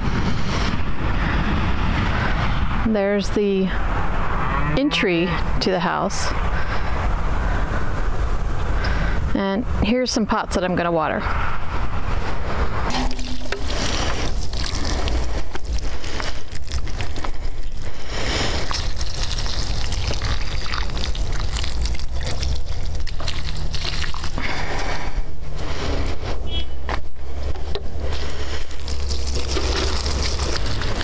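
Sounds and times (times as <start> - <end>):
wind buffeting microphone: 0.0 - 9.9.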